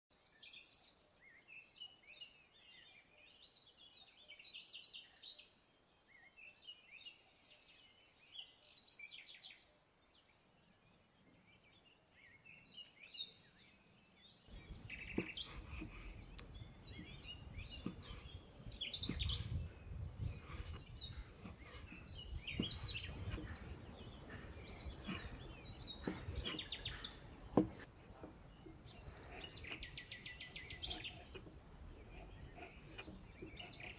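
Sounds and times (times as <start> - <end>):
small birds chirping: 0.1 - 33.9
cleaver knocking on wooden board: 27.5 - 28.8.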